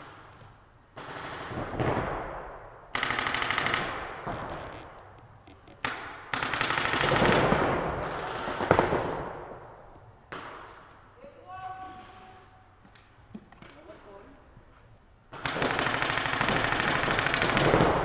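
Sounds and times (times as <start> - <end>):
paintball markers rapid-firing: 5.8 - 9.2, 15.3 - 18.0.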